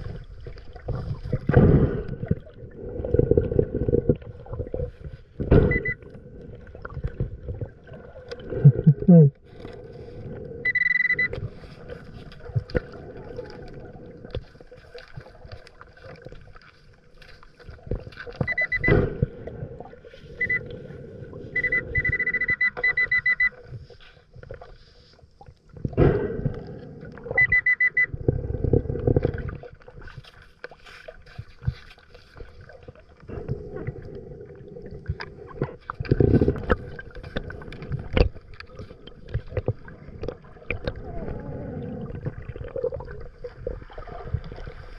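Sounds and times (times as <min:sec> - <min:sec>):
gurgling breath bubbles: 0:00.0 - 0:16.6, 0:17.7 - 0:23.6, 0:25.7 - 0:30.2, 0:31.6 - 0:44.9
metal detector beeping: 0:05.7 - 0:06.0, 0:10.6 - 0:11.4, 0:18.4 - 0:19.0, 0:20.4 - 0:20.7, 0:21.5 - 0:23.6, 0:27.4 - 0:28.1.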